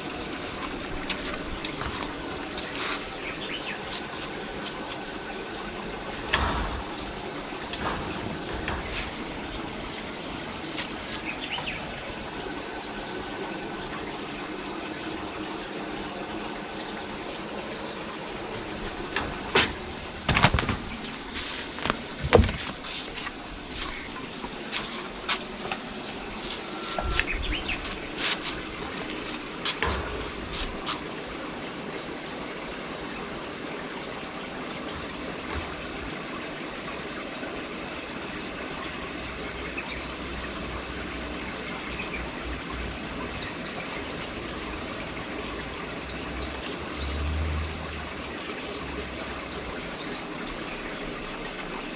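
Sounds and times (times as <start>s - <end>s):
plastic pipes knocking and clattering: 6.2s - 9.9s, 19.0s - 25.9s.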